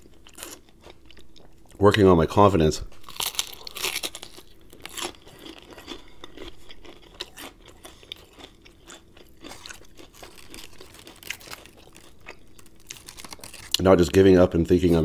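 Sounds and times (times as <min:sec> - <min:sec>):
chewing crispy fried chicken: 0:00.0 - 0:01.9, 0:02.9 - 0:15.0.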